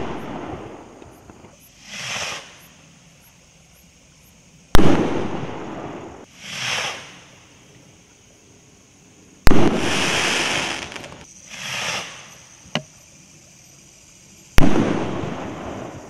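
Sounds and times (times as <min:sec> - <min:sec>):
firework hiss and crackle: 0:00.0 - 0:16.0
firework rocket bursting bang: 0:04.7 - 0:07.3, 0:09.4 - 0:12.3, 0:14.6 - 0:16.0.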